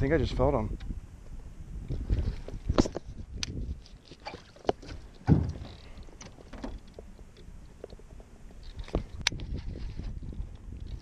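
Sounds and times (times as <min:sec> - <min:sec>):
low thump: 0:05.2 - 0:05.9.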